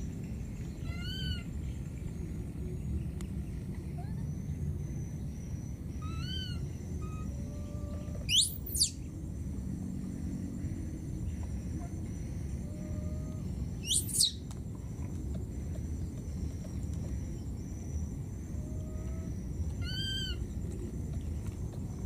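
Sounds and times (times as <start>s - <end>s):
infant monkey shrill squeals: 0.8s - 1.4s, 6.0s - 9.0s, 13.8s - 14.4s, 19.8s - 20.4s.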